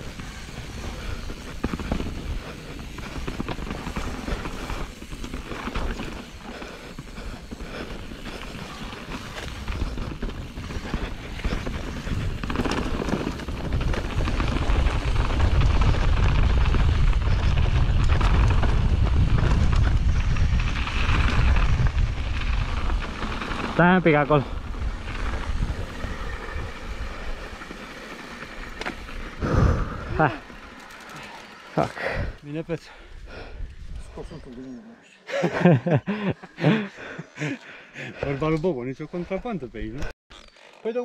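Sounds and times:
bike rolling and rattling: 0.0 - 34.6
wind on microphone: 9.6 - 23.8.

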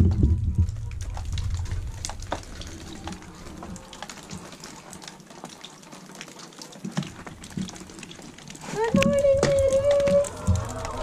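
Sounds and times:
low rumble: 0.0 - 3.8
water dripping off roof: 0.0 - 11.0.

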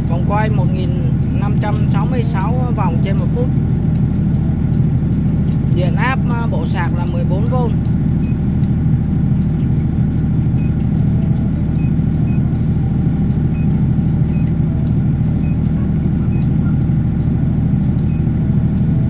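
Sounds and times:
diesel generator droning: 0.0 - 19.0
faint high beeps: 15.4 - 16.7.

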